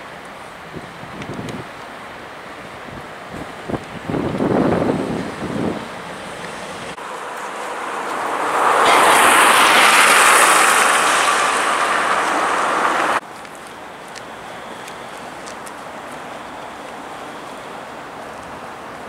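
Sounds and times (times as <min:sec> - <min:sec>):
steady outdoor hum: 0:00.0 - 0:19.0
rushing vehicle: 0:03.3 - 0:13.2.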